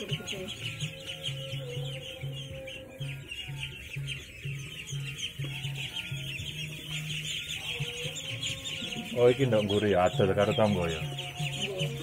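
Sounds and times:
ducklings peeping: 0.0 - 12.0.

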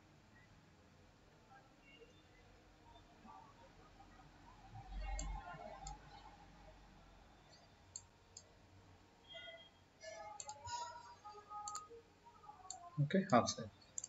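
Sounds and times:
faint computer mouse clicks: 10.4 - 10.6.

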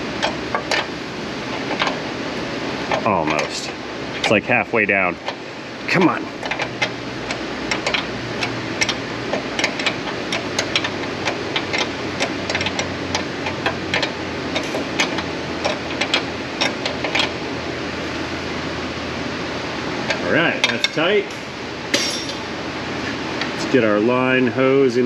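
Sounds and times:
steady hum: 0.0 - 25.0
hand wrench clicking: 6.4 - 17.3.

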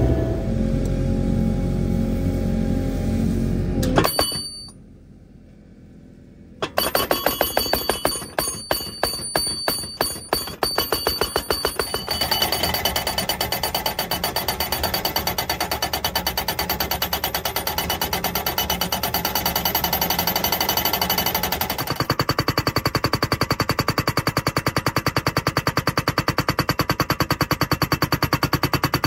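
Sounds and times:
post driver hammering: 4.0 - 4.7, 6.6 - 18.9.

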